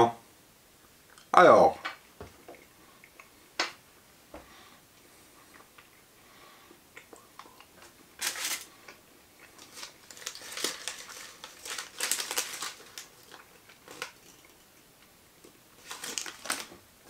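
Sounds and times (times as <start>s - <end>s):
wrapper crinkling: 8.2s - 8.7s, 9.5s - 14.7s, 15.7s - 16.8s.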